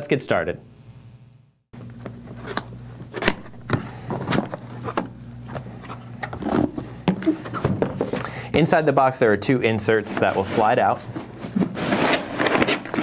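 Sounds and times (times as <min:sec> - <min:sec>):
cardboard box being handled: 0:10.1 - 0:13.0.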